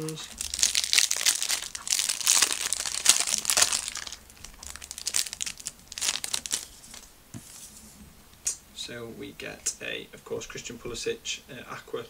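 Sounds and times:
plastic wrapper crinkling: 0.0 - 7.2.

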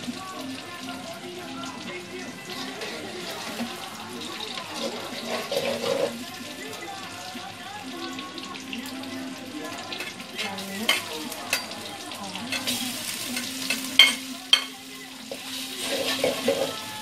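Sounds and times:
vegetables sizzling in oil: 0.0 - 17.0
metal spatula scraping wok: 2.5 - 6.2, 15.3 - 16.9.

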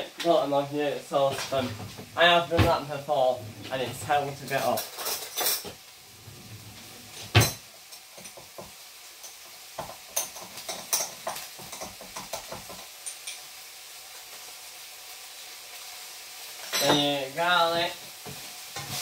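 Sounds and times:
mince sizzling in a wok: 0.0 - 19.0
kitchen utensils clattering: 1.2 - 8.5, 9.9 - 13.3, 16.6 - 17.2.

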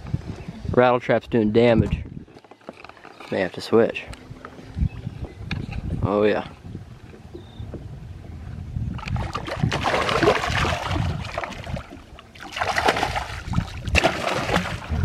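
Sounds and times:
fish thrashing and splashing: 9.0 - 15.0.

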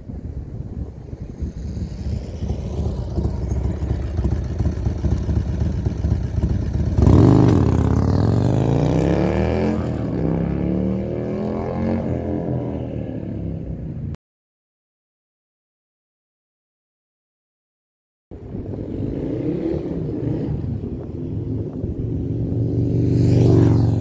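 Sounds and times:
motorcycle exhaust passing by: 0.8 - 14.1, 18.4 - 24.0.

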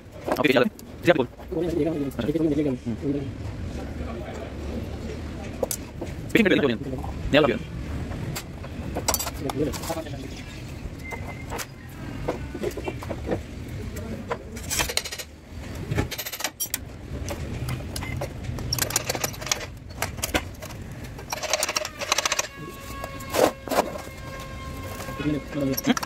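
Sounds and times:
metal clinks and knocks: 8.9 - 10.0, 16.0 - 23.6
rattling scrapes: 18.6 - 26.0.

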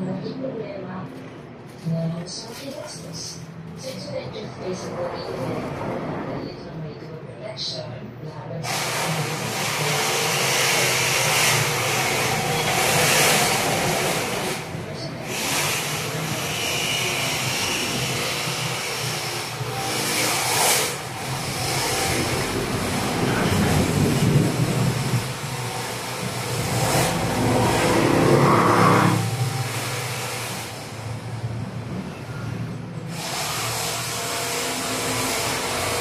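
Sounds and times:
steady rumbling background: 21.0 - 33.0.

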